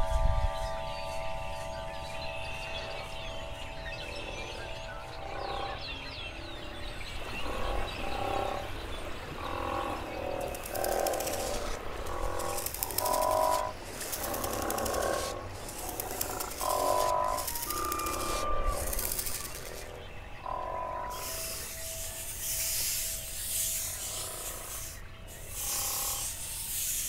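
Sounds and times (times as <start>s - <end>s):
lingering chime tone: 0.0s - 7.6s
animal croaks: 9.4s - 26.4s
high rattling trill: 10.4s - 19.9s.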